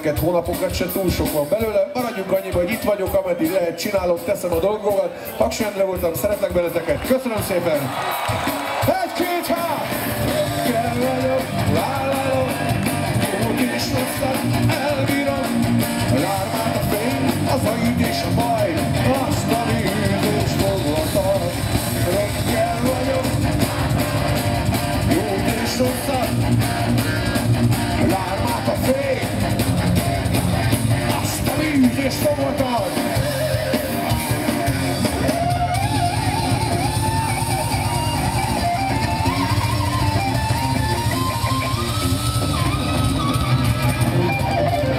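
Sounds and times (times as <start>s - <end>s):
heavy metal band playing live: 0.0s - 44.9s
man singing lead vocal: 8.9s - 24.2s, 25.0s - 29.6s, 30.9s - 35.0s.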